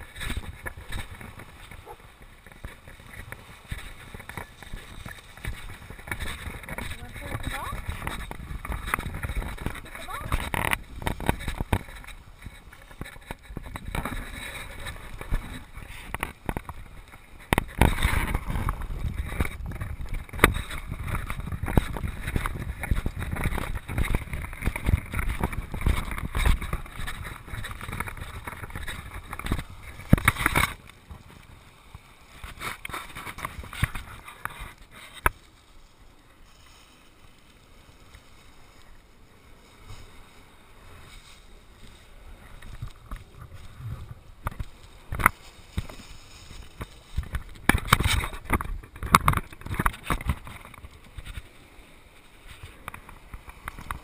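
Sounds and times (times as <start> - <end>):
wind buffeting microphone: 0.0 - 34.9
handling knocks and crackles: 0.0 - 35.5, 41.0 - 51.5
walking on sand: 0.0 - 54.0.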